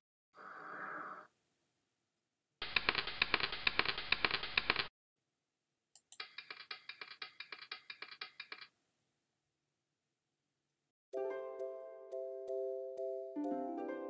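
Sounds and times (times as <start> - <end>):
rapid clicking: 2.6 - 4.9, 6.0 - 8.7
sharp clicks: 2.6 - 4.9, 6.0 - 8.7.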